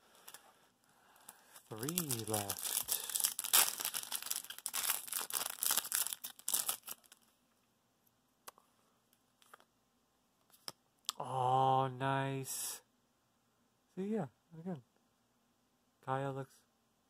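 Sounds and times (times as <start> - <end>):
foil wrapper crinkling and tearing: 1.2 - 7.2.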